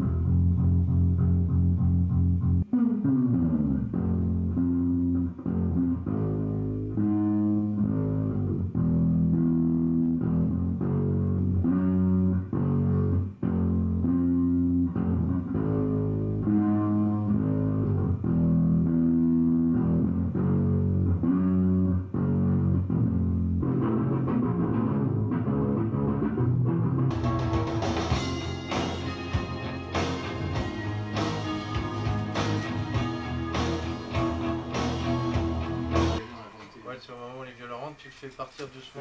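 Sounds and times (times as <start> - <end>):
acoustic guitar chords: 27.0 - 37.0.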